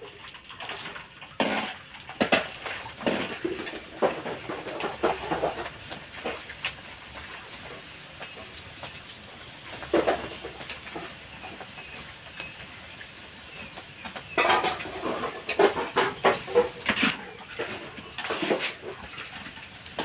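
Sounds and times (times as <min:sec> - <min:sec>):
crackers sizzling in hot oil: 0:00.0 - 0:20.0.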